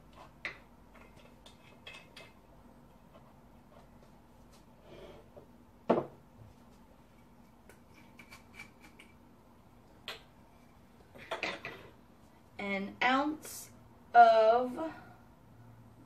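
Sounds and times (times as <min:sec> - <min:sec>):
loud knock on table: 0:05.9 - 0:06.2.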